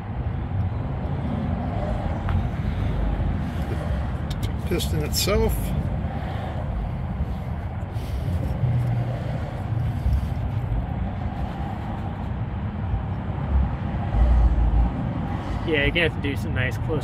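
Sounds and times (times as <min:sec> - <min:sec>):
low outdoor rumble: 0:00.0 - 0:17.0.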